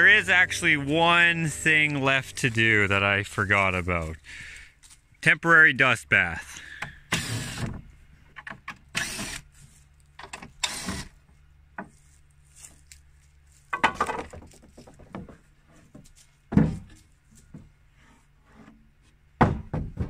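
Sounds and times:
steady low hum: 0.0s - 13.7s
impact driver bursts: 6.8s - 7.8s, 8.9s - 9.5s, 10.6s - 11.1s
loud wooden knock: 19.4s - 20.0s.

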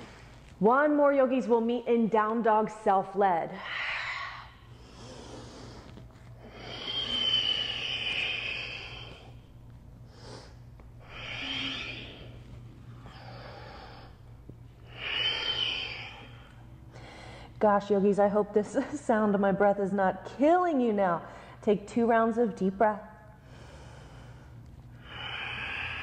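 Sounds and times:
woman breathing deeply: 3.6s - 17.6s, 23.4s - 26.0s.

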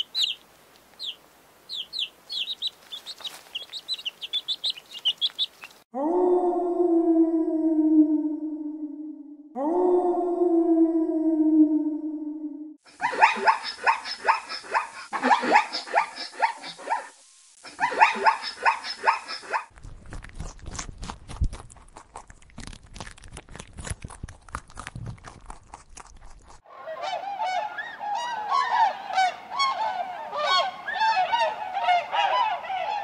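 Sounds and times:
rabbit chewing grass: 19.7s - 26.6s
geese honking: 26.7s - 33.0s.

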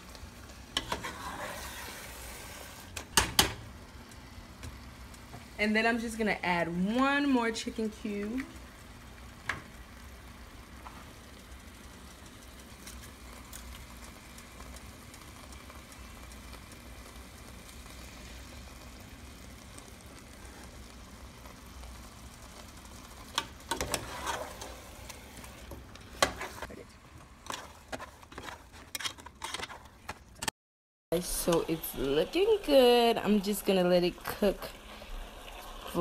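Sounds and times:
stew cooking with faint hiss: 0.0s - 30.5s, 31.1s - 36.0s
spoon scraping and knocking pot: 0.8s - 1.7s, 27.4s - 30.2s.

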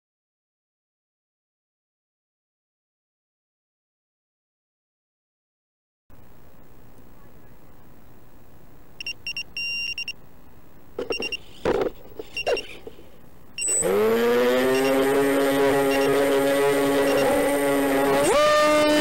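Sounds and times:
short electronic beeps: 9.0s - 10.2s, 11.0s - 11.5s, 12.2s - 12.8s, 13.6s - 14.0s, 14.6s - 15.1s, 15.7s - 17.4s
electric motor and propeller drone: 13.6s - 19.0s.

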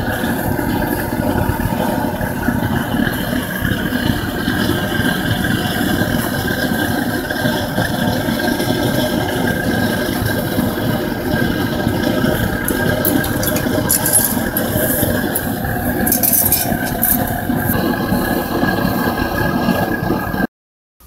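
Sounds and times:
furnace burner rumbling: 0.0s - 20.5s
metal tongs clicking: 12.7s - 17.4s.

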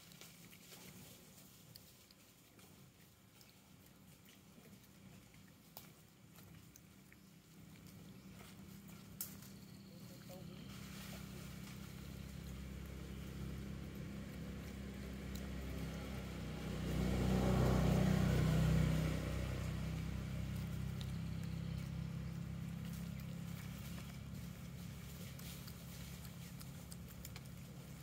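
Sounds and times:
low engine hum: 2.9s - 28.0s
motor vehicle passing: 6.4s - 28.0s.

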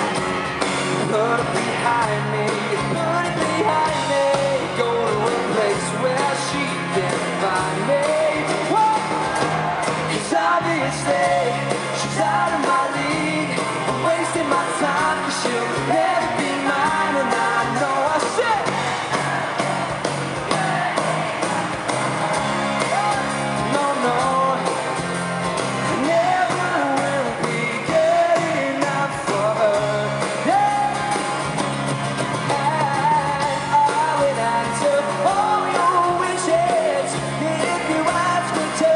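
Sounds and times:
acoustic guitar: 0.0s - 38.9s
bass guitar: 0.0s - 38.9s
drums: 0.0s - 38.9s
electric guitar: 0.0s - 38.9s
person singing: 0.9s - 9.4s, 10.1s - 18.8s, 22.9s - 25.0s, 25.9s - 31.5s, 32.4s - 38.9s.

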